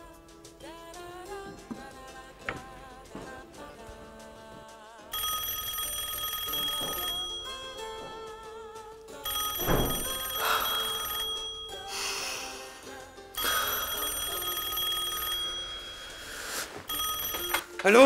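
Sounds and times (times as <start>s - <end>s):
telephone bell ringing: 5.1s - 8.4s, 9.2s - 12.2s, 13.4s - 18.0s.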